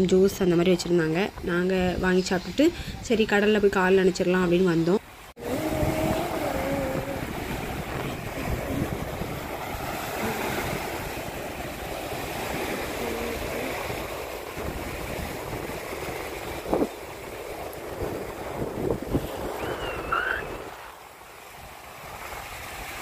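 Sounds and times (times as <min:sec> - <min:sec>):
waves washing up a beach: 0:05.0 - 0:23.0
wind buffeting microphone: 0:05.4 - 0:23.0.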